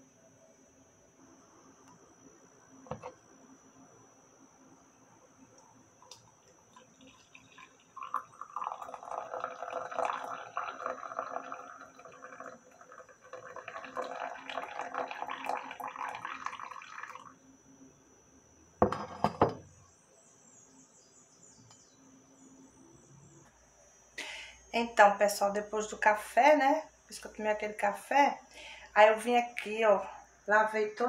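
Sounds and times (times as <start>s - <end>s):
coffee pouring into a mug: 6.0s - 17.4s
jug knocking on stone counter: 18.8s - 19.7s.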